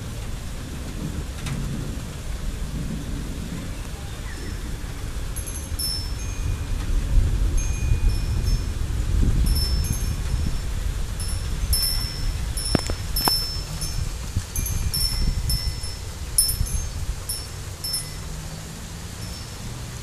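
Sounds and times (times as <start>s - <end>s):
wind buffeting microphone: 0.0s - 20.0s
wind chimes tinkling: 5.3s - 20.0s.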